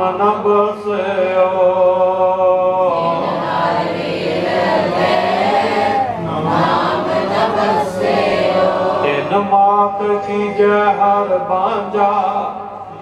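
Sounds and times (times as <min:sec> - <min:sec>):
voices singing: 0:02.8 - 0:11.8.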